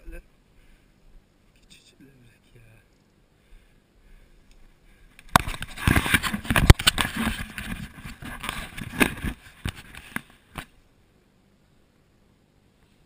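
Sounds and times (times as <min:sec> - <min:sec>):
camera handling scrapes and knocks: 0:05.2 - 0:10.7.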